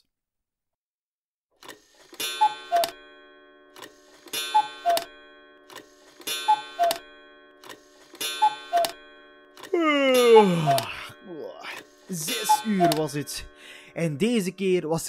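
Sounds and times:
clock clicks and ringing strike: 1.6 - 14.6
cuckoo clock calls: 2.1 - 3.1, 3.8 - 14.6.

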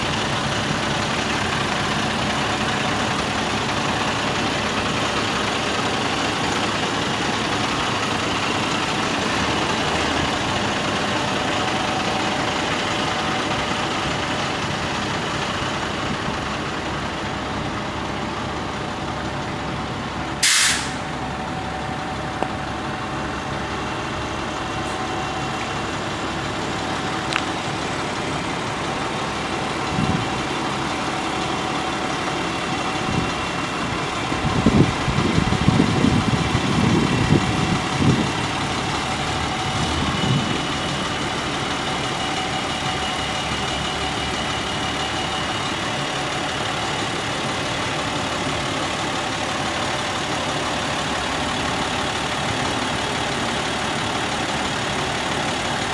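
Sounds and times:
diesel truck engine running: 0.0 - 55.9
air brake hiss: 20.4 - 21.1.

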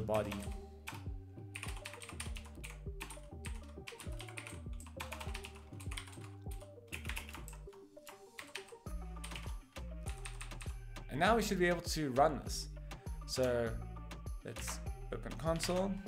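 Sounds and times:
background music: 0.0 - 16.0
keyboard typing clicks: 1.6 - 7.7.

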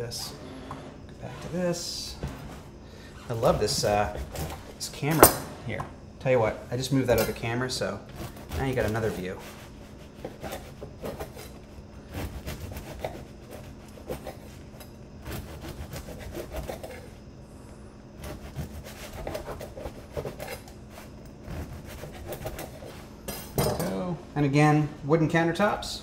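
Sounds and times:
knife sawing through crusty bread: 8.1 - 17.2, 18.2 - 23.1.

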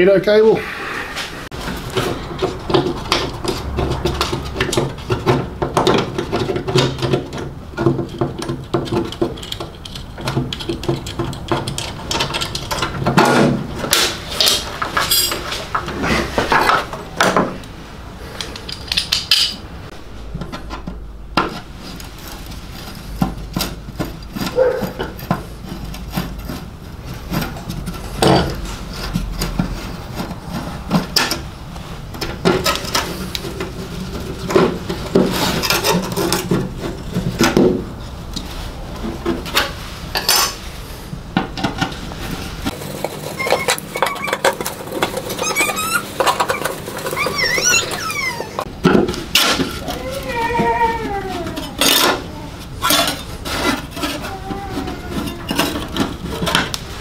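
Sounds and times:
metal parts and tools clinking: 1.9 - 15.8, 18.4 - 19.7, 42.7 - 56.8
wires scraping on metal: 21.5 - 41.1, 41.8 - 48.7, 49.3 - 57.0.

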